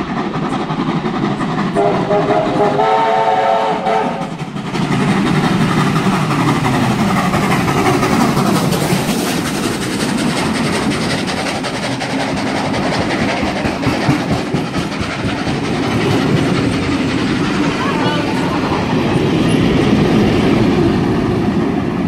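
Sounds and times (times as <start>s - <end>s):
steam train passing at speed: 0.0s - 22.0s
wheels clattering over rails: 3.9s - 22.0s.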